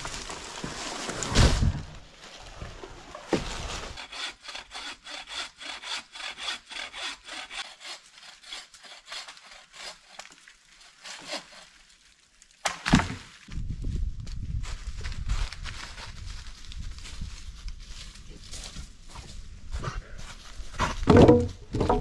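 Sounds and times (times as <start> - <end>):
hand saw cutting wood: 3.8 - 10.3, 10.9 - 11.7.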